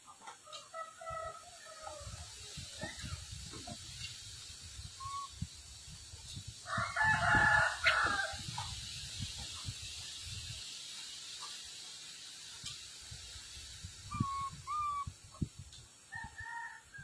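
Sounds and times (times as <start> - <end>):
rooster crowing: 6.7 - 8.4, 16.1 - 17.0.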